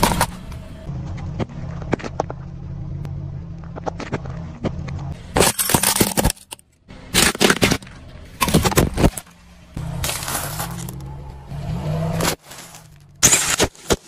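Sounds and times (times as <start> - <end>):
car tyre rolling on asphalt: 0.0 - 5.4, 7.8 - 13.2
glass and cans crunching: 5.3 - 9.2, 10.0 - 11.0, 12.2 - 14.0.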